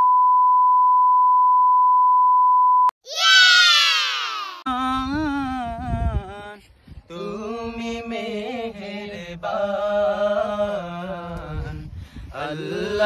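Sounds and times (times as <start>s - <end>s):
men singing devotional song: 4.7s - 13.0s.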